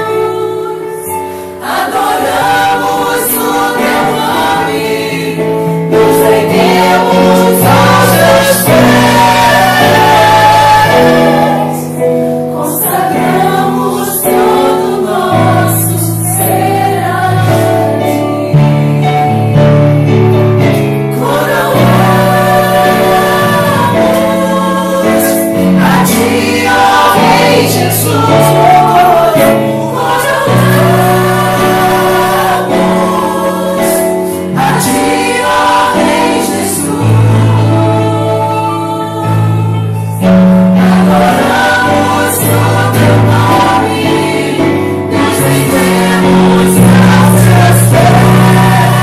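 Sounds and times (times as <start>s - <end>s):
congregation singing: 0.0s - 49.0s
instrumental accompaniment: 0.0s - 49.0s.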